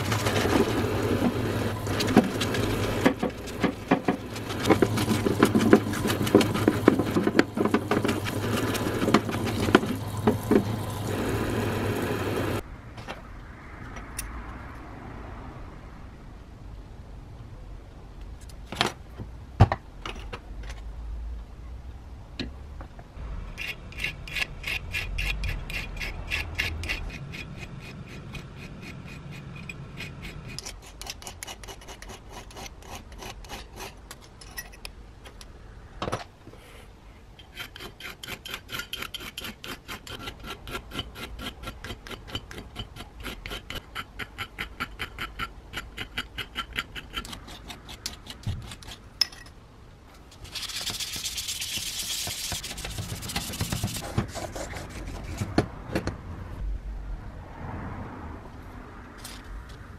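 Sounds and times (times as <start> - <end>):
file rasping on steel: 23.6 - 34.1, 37.4 - 49.0.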